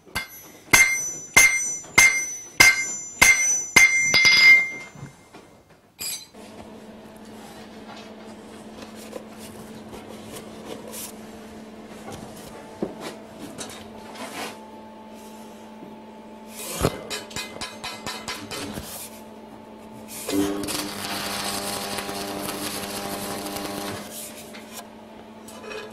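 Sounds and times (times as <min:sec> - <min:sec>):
low electrical hum: 0:00.0 - 0:25.9
steel clicking and clinking: 0:00.1 - 0:05.1
welding arc crackling: 0:20.3 - 0:24.1.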